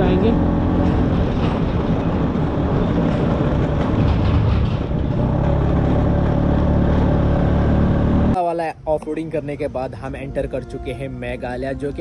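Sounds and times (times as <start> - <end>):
wind noise on microphone: 0.0 - 5.2
road noise: 0.0 - 12.0
scooter two-stroke engine: 3.2 - 8.3.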